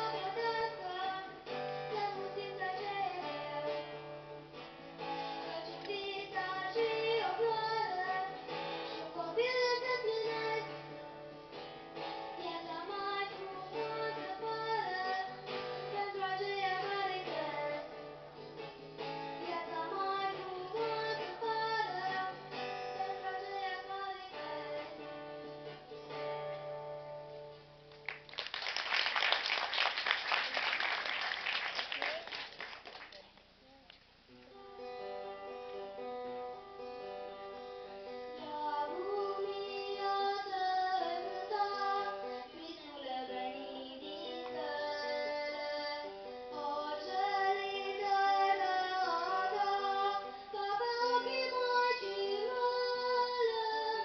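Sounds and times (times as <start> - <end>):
girl singing folk song: 0.0 - 27.6, 34.5 - 54.0
acoustic guitar picking and strumming: 0.0 - 28.2, 34.5 - 54.0
applause: 27.9 - 33.5.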